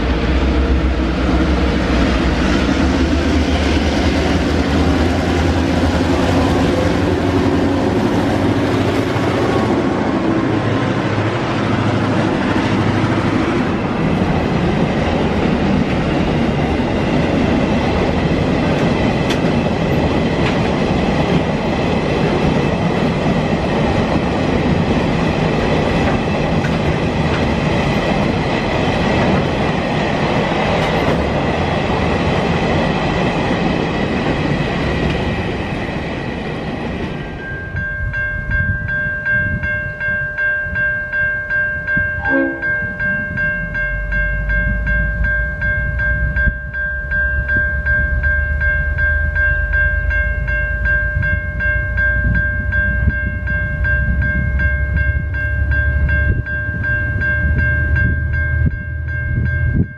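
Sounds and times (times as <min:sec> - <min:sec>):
diesel locomotive engines: 0:00.0 - 0:59.9
freight wagons clattering on rails: 0:11.7 - 0:35.8
high ringing from wheels: 0:35.3 - 0:59.9.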